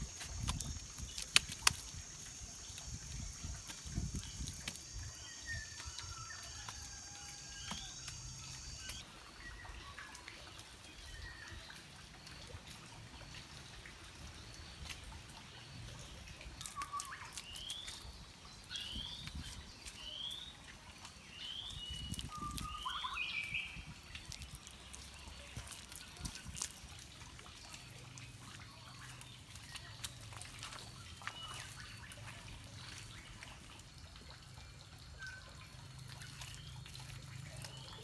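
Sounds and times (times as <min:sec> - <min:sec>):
wet clay slapping: 0:00.0 - 0:06.0, 0:06.6 - 0:09.0, 0:16.6 - 0:18.0, 0:21.5 - 0:33.4
bird chirping: 0:21.4 - 0:25.8.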